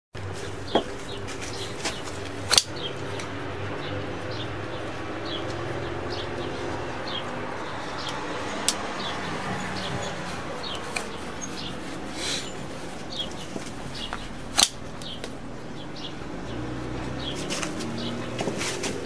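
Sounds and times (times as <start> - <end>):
small birds chirping: 0.3 - 19.0
knife blade folding shut click: 14.6 - 14.8
knife blade snapping open: 14.6 - 14.8.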